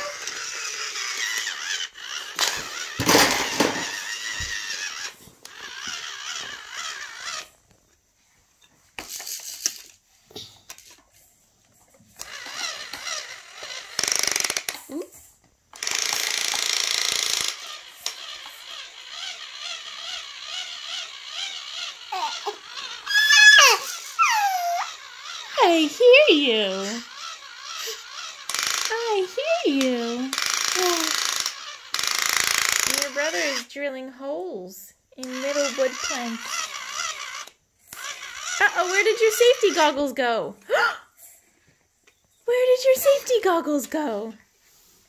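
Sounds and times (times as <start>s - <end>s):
toy drill whirring: 0.0s - 8.0s, 8.6s - 34.3s, 35.2s - 44.2s
baby vocalising: 22.1s - 25.0s, 30.8s - 31.2s.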